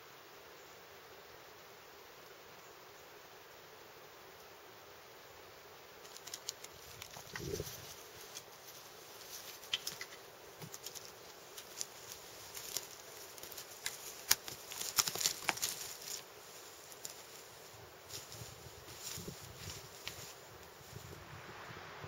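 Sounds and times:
twigs cracking: 6.0 - 20.4
footsteps on dry twigs: 6.0 - 21.1.

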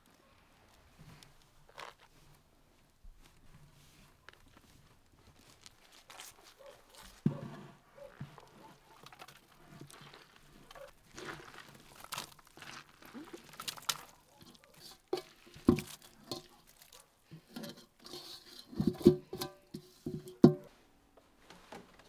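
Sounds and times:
wet rustling and crunching: 4.3 - 7.2, 8.0 - 18.0.

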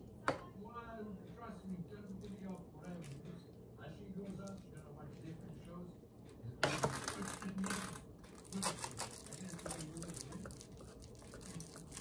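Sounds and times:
knife scraping on foil: 6.7 - 12.0.

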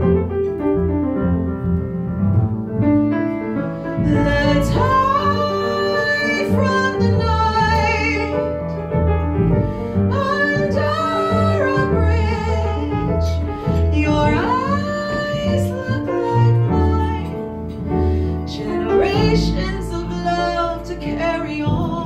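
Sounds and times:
piano accompaniment: 0.0 - 22.0
woman singing with vibrato: 4.0 - 8.4, 10.1 - 17.4, 18.5 - 22.0.

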